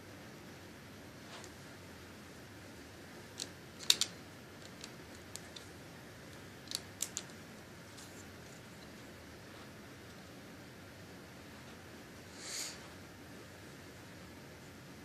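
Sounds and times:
plastic bricks clicking: 3.4s - 5.7s, 6.6s - 7.4s.

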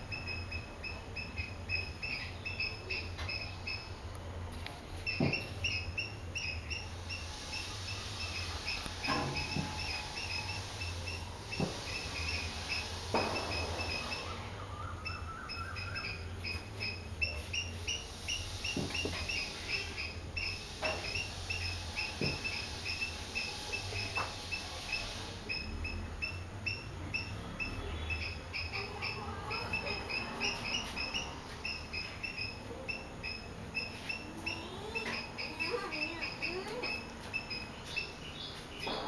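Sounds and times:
small animal chirping: 0.1s - 3.9s, 5.0s - 14.4s, 15.0s - 38.9s.

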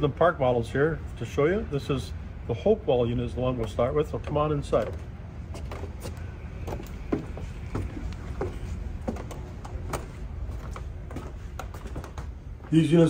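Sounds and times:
low background hum: 0.0s - 13.0s
footsteps on steps and floor: 3.7s - 13.0s.

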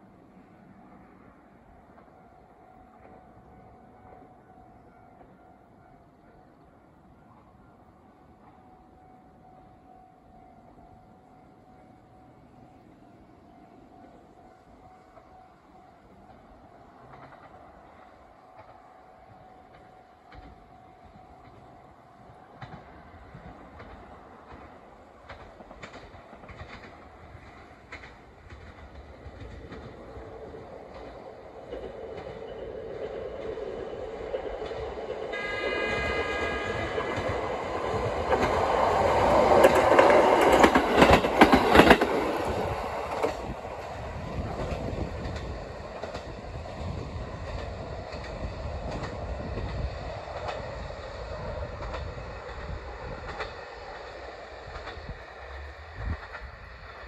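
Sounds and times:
wheels clacking over rail joints: 22.5s - 57.0s
train horn blast: 35.1s - 38.6s.

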